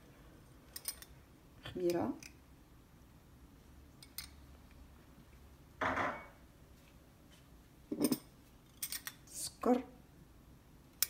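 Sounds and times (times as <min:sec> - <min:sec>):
dishes and spoon clattering: 0:05.8 - 0:06.4, 0:07.9 - 0:09.1.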